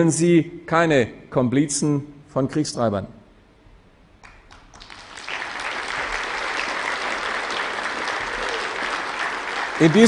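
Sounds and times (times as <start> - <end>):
audience applause: 4.3 - 10.0.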